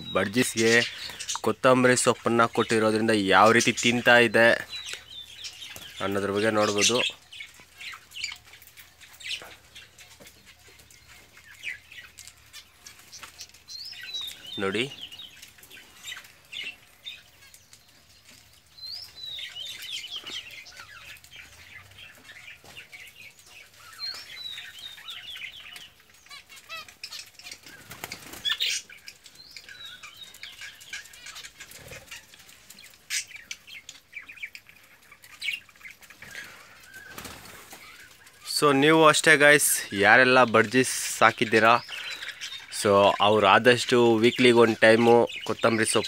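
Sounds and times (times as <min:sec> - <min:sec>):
cage birds chirping: 0:00.0 - 0:46.0
wing flutter: 0:26.3 - 0:28.8, 0:36.1 - 0:38.4.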